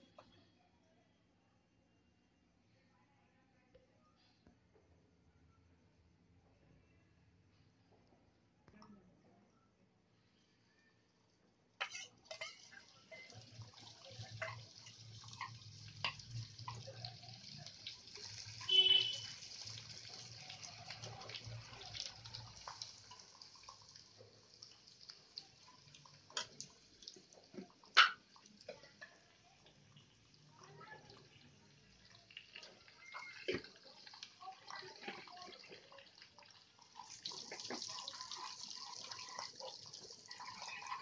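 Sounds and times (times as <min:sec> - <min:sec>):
metal spatula scraping a pan: 0:11.8 - 0:12.8
spices sizzling in hot oil: 0:11.8 - 0:41.0.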